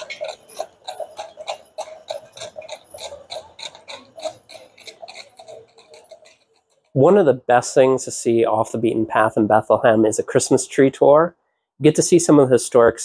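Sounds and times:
hooves clip-clopping on pavement: 0:00.0 - 0:08.0.

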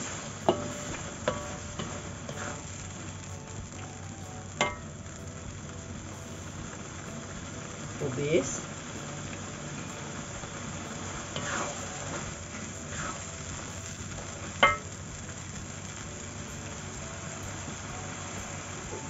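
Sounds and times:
spatula scraping a pan: 0:00.0 - 0:02.9, 0:11.0 - 0:12.3
cabbage sizzling in a wok: 0:00.0 - 0:19.0.

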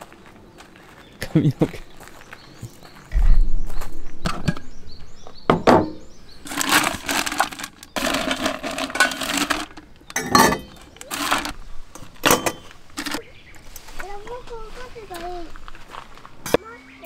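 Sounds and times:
ice cubes and metal cups clinking: 0:06.4 - 0:13.2
plastic bag crinkling: 0:06.5 - 0:09.8.

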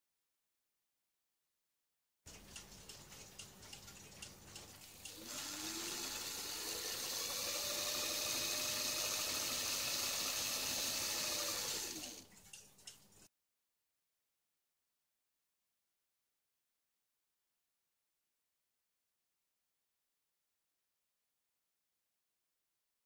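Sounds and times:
electric motor whining: 0:05.1 - 0:12.2.

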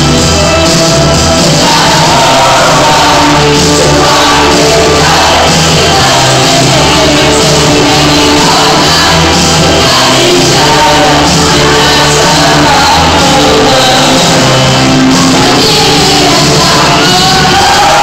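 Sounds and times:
rock backing track: 0:00.0 - 0:18.0
girls singing together: 0:01.5 - 0:18.0
girls shouting: 0:15.4 - 0:18.0.

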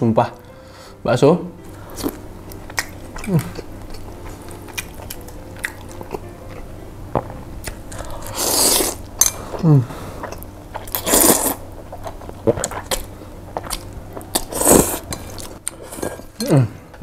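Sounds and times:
person slurping noodles: 0:08.0 - 0:11.6.

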